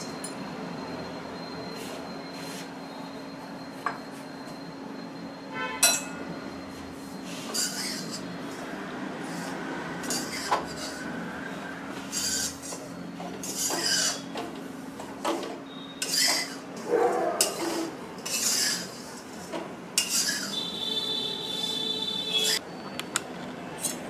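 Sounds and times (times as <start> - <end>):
metal clinking on pan: 5.8 - 6.2
metal spatula scraping pan: 7.3 - 8.3, 10.0 - 11.1, 12.1 - 14.3, 16.0 - 16.6, 17.4 - 20.6.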